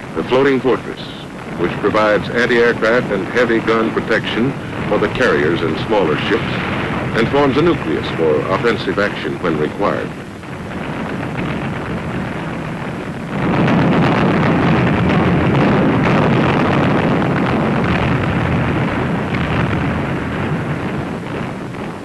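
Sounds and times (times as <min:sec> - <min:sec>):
loud steady rumbling roar: 0:00.0 - 0:22.0.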